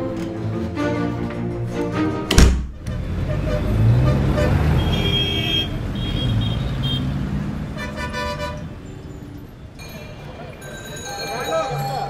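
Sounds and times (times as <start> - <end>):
traffic engines rumbling: 0.0 - 12.0
vehicle horn toots: 3.2 - 8.7.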